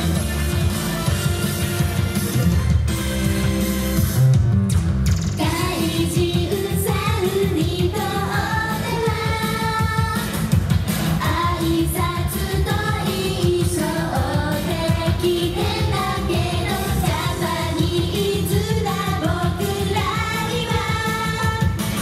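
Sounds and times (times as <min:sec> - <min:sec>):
backing track with steady beat: 0:00.0 - 0:22.0
female voices singing pop: 0:05.4 - 0:10.4, 0:11.2 - 0:21.9.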